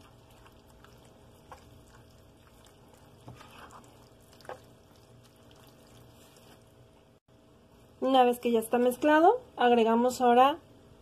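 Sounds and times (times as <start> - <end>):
spatula stirring wet filling: 0.0 - 7.2.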